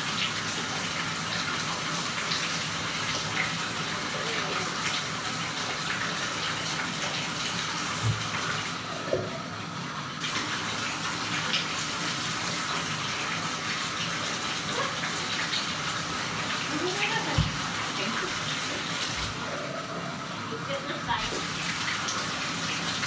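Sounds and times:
tap running into bathtub: 4.2s - 9.6s, 14.6s - 19.5s.

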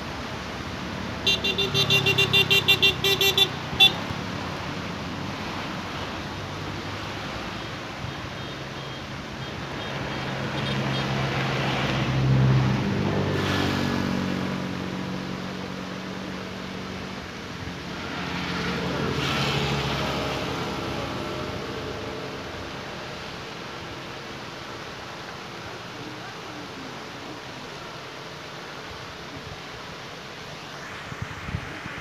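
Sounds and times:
vehicles passing on road: 0.0s - 32.0s
steady background hiss: 22.2s - 32.0s.

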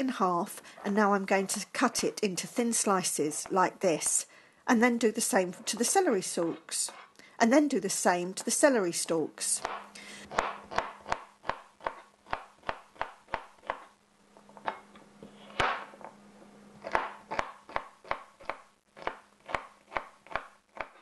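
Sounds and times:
knife chopping on plastic board: 9.6s - 13.9s, 16.8s - 21.0s.

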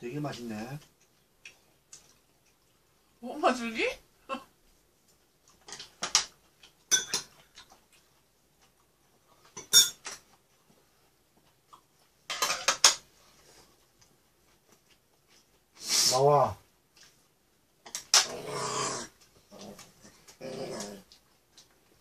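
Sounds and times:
chopsticks clinking on ceramic bowls: 6.9s - 7.4s, 9.5s - 10.2s.

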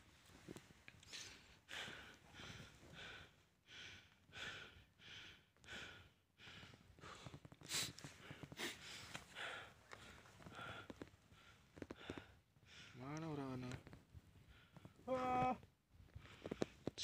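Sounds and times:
person panting: 1.1s - 13.0s.

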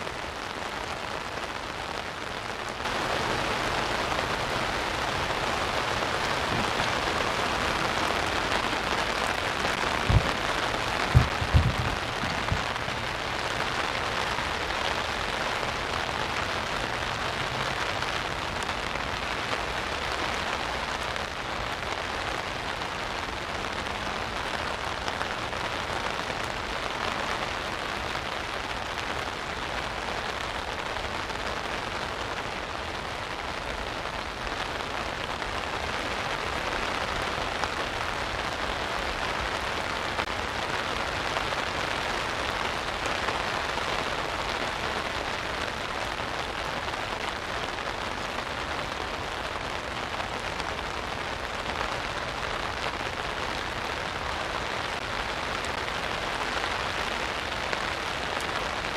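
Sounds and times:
rain on umbrella canopy: 0.0s - 58.9s
low thumps: 10.0s - 12.8s.

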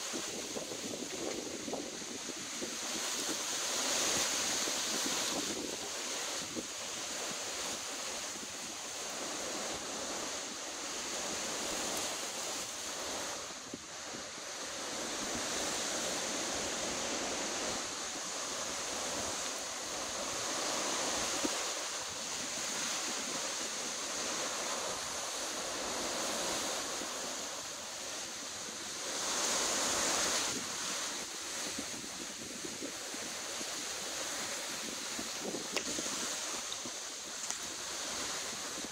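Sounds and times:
storm wind through palm fronds: 0.0s - 38.9s.

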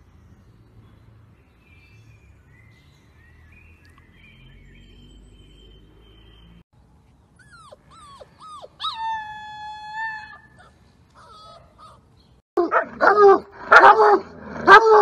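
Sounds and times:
puppy yelping: 7.4s - 12.0s.

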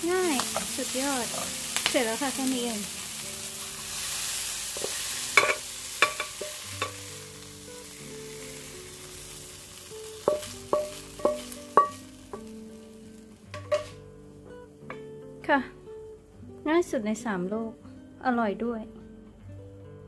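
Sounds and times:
food sizzling in frying pan: 0.0s - 15.2s.

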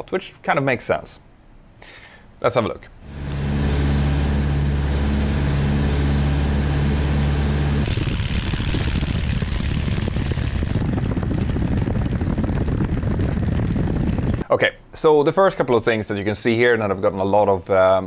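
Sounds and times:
light aircraft engine and propeller: 3.0s - 14.4s
rushing wind: 3.0s - 14.4s.

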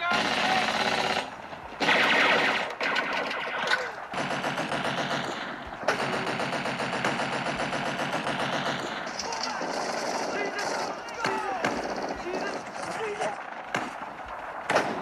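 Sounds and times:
machine-gun fire bursts: 0.0s - 15.0s.

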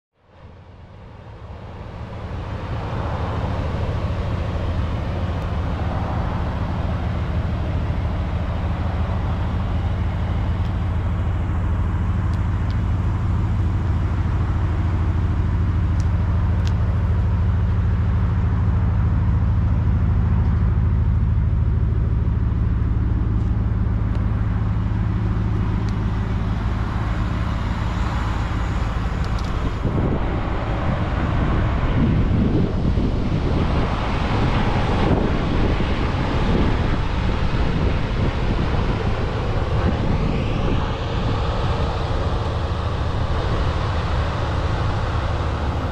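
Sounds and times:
engine idling low rumble: 0.1s - 45.9s.

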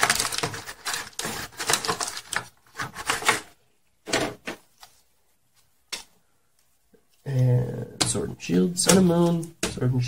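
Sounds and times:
foil wrappers crinkling: 0.0s - 3.5s.

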